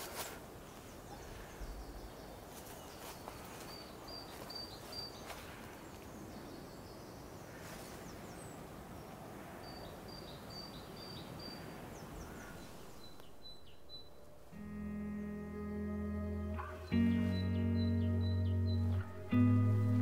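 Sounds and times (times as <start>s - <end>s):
faint outdoor hiss: 0.0s - 20.0s
songbird singing: 0.2s - 20.0s.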